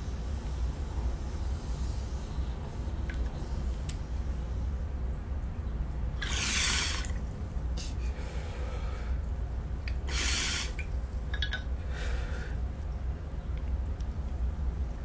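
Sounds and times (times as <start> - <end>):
hissing breaths through a bong: 0.2 - 4.8, 6.2 - 7.2, 7.8 - 9.3, 9.9 - 10.9, 11.8 - 12.7.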